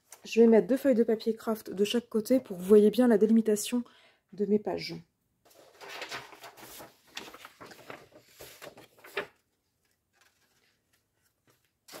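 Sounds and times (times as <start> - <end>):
paper rustling and sliding: 5.5 - 12.0.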